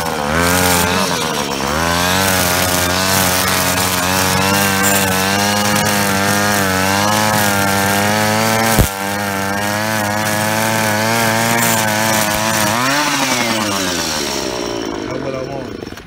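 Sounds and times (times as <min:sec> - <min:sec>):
string trimmer cutting grass: 0:00.0 - 0:16.0.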